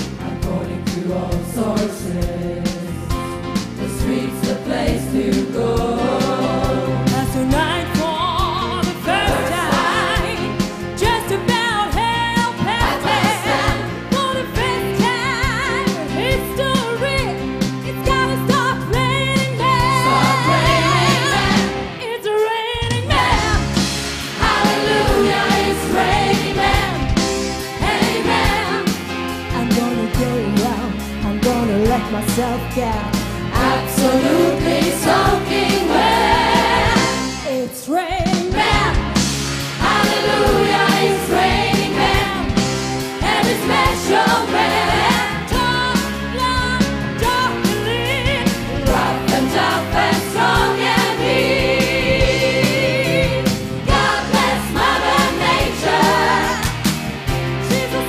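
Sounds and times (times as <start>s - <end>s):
choir singing: 0.0s - 3.2s, 3.8s - 10.8s, 12.6s - 14.2s, 19.6s - 22.2s, 22.9s - 29.3s, 33.5s - 46.0s, 48.3s - 58.0s
live band playing: 0.0s - 58.0s
woman singing lead vocal: 4.1s - 23.8s, 29.5s - 39.0s, 43.3s - 54.5s, 57.6s - 58.0s.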